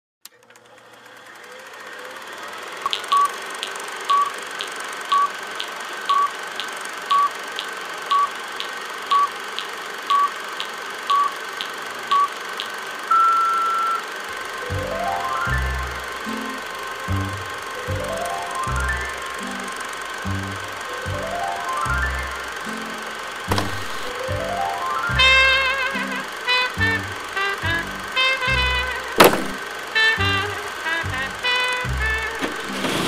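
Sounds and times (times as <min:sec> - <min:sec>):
sharp ticks: 0:02.8 - 0:12.8
short beeps: 0:11.1 - 0:11.3, 0:13.1 - 0:14.1.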